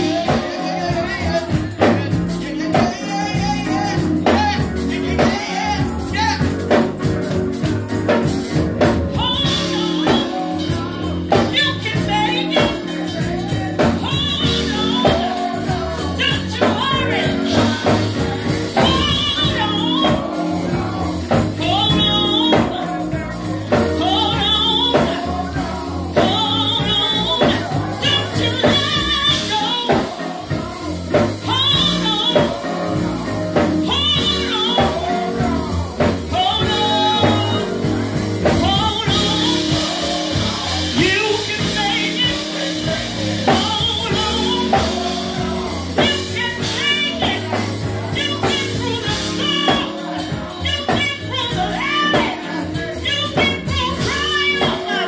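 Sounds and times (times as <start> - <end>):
woman singing through loudspeaker: 0.0 - 6.8, 9.1 - 55.0
instrumental accompaniment: 0.0 - 55.0.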